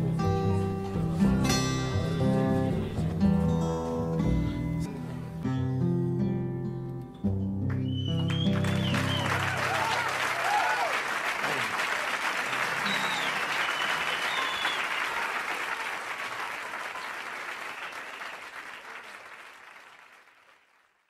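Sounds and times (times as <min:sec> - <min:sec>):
audience applauding: 0:07.7 - 0:21.0
short whistles: 0:07.8 - 0:09.6, 0:12.8 - 0:15.2, 0:17.7 - 0:18.9.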